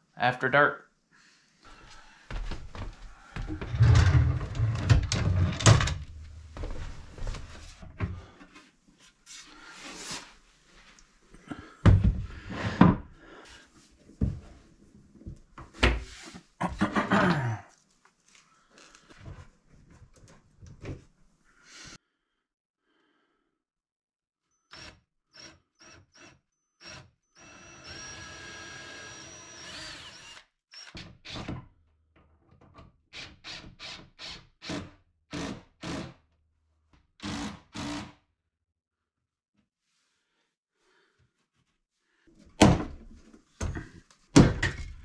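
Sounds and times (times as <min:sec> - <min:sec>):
cordless drill drilling into wood: 0:24.7 - 0:31.4, 0:37.2 - 0:38.2.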